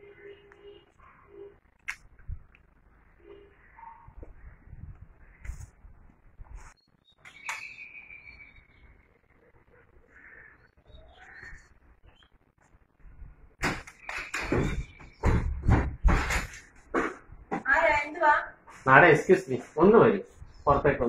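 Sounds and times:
bird chirps: 6.8s - 12.4s.

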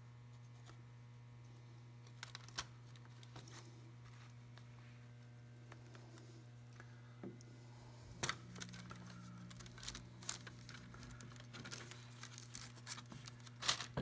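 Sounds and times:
faint steady hum: 0.0s - 14.0s
plastic sheet crinkling: 2.0s - 4.4s, 8.1s - 14.0s.

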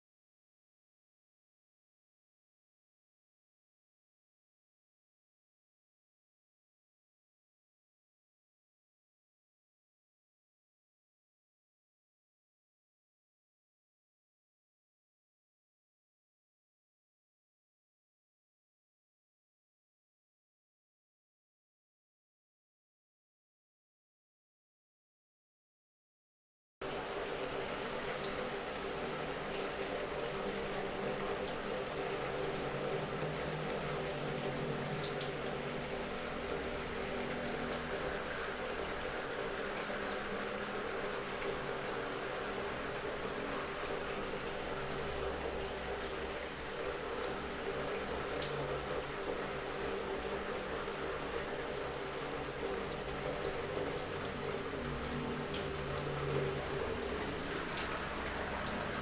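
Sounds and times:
shower water spraying on tiles: 26.8s - 59.0s.

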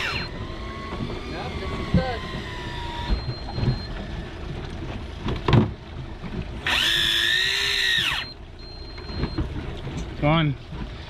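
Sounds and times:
small electric motor whining: 0.0s - 3.5s, 6.6s - 8.4s.

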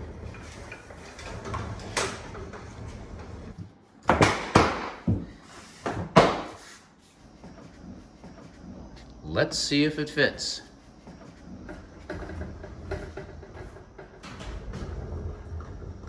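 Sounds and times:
refrigerator rolling over floor: 0.0s - 3.6s, 11.1s - 16.0s.

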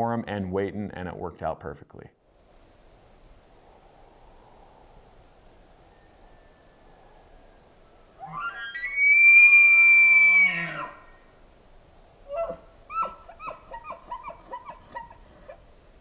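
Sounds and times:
elk bugling: 12.2s - 15.7s
elk chuckles: 12.4s - 15.6s.

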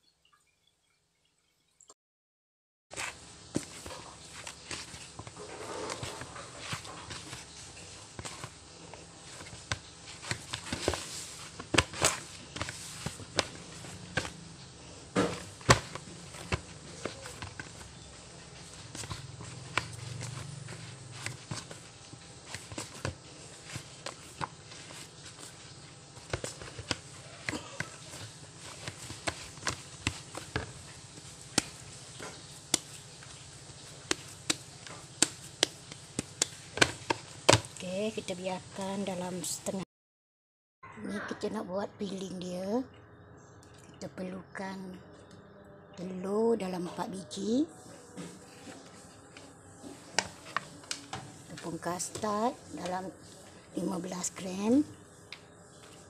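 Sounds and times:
low steady hum: 3.0s - 39.8s
dough knocking against plastic bowl: 9.2s - 14.5s, 15.1s - 37.8s.

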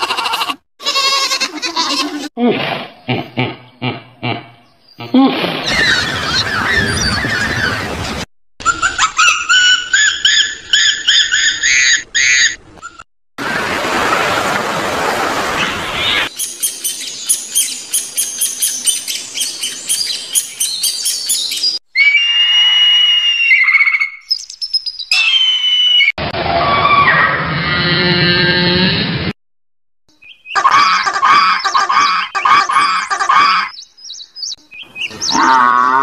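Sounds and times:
whistled bird notes: 16.0s - 26.1s
bird chirps: 16.1s - 21.8s, 23.5s - 26.1s, 30.1s - 35.6s
bird chattering calls: 30.3s - 33.8s.

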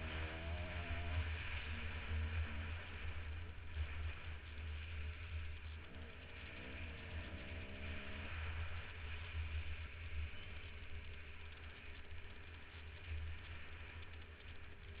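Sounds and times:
motorcycle engine revving: 0.0s - 11.2s.

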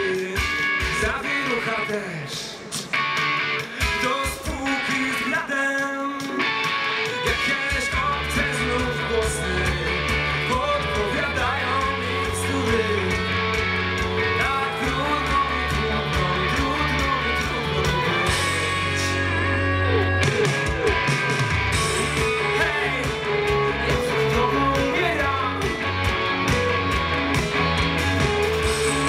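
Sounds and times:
person singing: 0.0s - 3.0s, 3.6s - 29.0s
live rock band: 0.0s - 29.0s
bass guitar: 6.4s - 29.0s.

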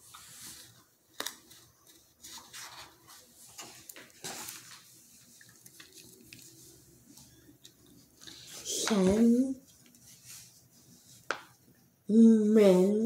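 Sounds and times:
paper pages rustling: 0.0s - 11.7s.

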